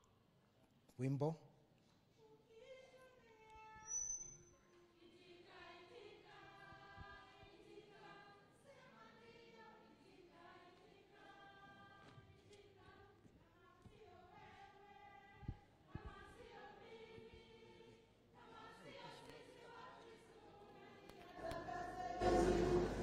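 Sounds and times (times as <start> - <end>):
brief high squeal: 3.7 - 4.7
church choir singing: 5.0 - 23.0.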